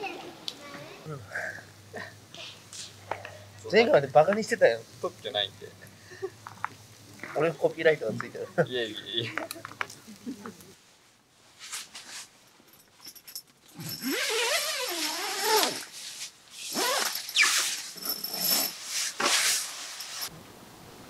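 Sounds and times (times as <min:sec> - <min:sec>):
tent fabric rustling: 0:10.8 - 0:12.5, 0:13.7 - 0:20.3.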